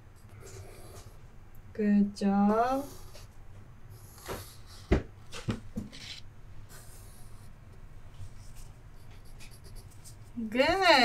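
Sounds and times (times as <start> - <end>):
marker scratching on paper: 5.8 - 6.2, 8.4 - 10.8.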